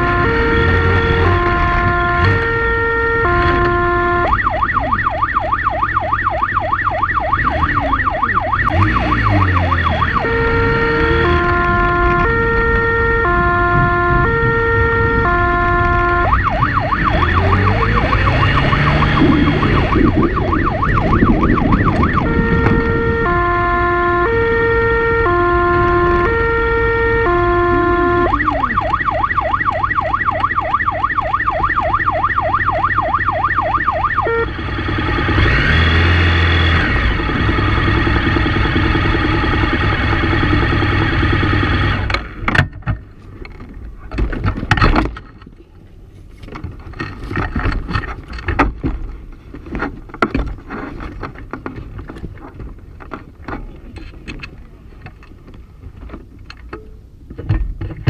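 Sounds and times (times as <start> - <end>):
motorcycle engine revving: 0.0 - 30.6, 32.4 - 42.5
police siren: 0.0 - 42.1.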